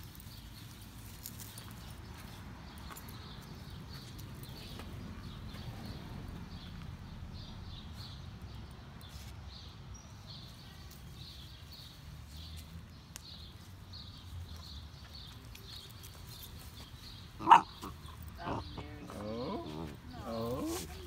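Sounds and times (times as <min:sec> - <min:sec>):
puppies wrestling on grass: 0:00.0 - 0:21.0.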